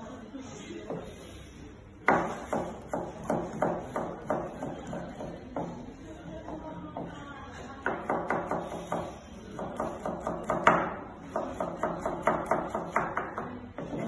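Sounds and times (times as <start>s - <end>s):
knife chopping on cutting board: 2.0s - 5.7s, 7.9s - 14.0s.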